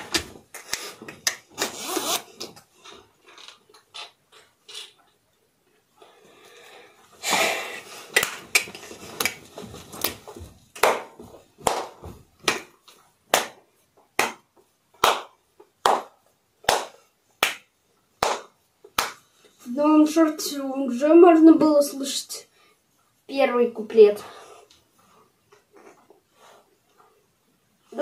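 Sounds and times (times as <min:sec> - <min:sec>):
hand claps keeping time: 0:08.1 - 0:09.4, 0:14.2 - 0:19.3.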